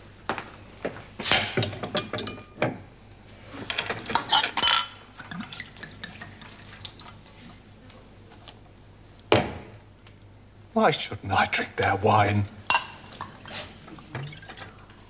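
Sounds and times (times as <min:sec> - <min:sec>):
glass and bottle clinking: 0:01.6 - 0:02.8, 0:04.2 - 0:05.0.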